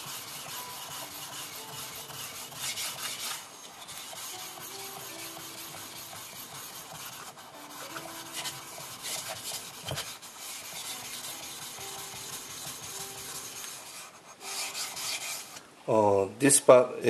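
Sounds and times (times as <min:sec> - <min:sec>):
whetstone scraping on stone: 0:01.3 - 0:11.8.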